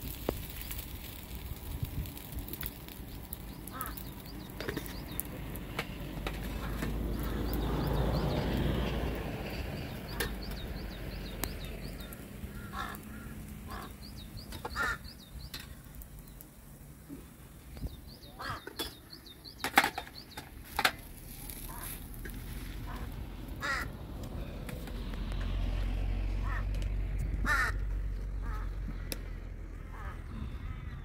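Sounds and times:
crows cawing: 0:03.7 - 0:04.2, 0:06.5 - 0:07.6, 0:11.9 - 0:15.2, 0:18.3 - 0:19.0, 0:22.8 - 0:24.0, 0:26.4 - 0:26.7, 0:27.4 - 0:31.0.

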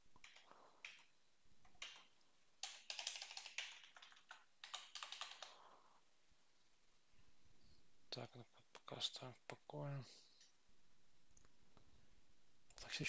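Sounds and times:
computer keyboard typing: 0:00.2 - 0:05.6.

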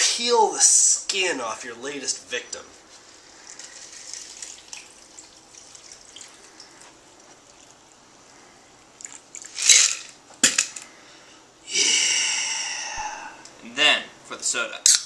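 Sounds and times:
liquid trickling into glass: 0:03.4 - 0:08.0.

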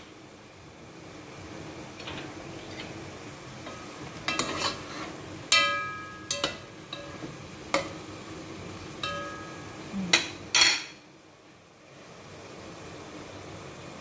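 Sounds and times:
faint sauce sizzle: 0:00.0 - 0:14.0
spoon stirring food in pot: 0:03.7 - 0:08.0
spoon clinking against pot: 0:05.5 - 0:07.9, 0:09.0 - 0:10.9.

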